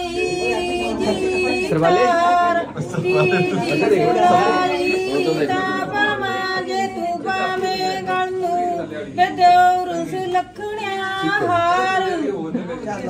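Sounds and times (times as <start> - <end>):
women singing folk song: 0.0 - 12.3.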